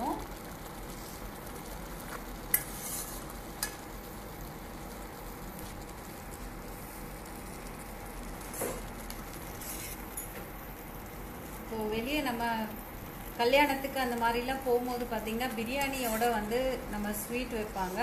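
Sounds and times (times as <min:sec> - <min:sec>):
steady hiss: 0:00.0 - 0:18.0
spatula scraping pan: 0:02.5 - 0:03.4, 0:09.5 - 0:10.0.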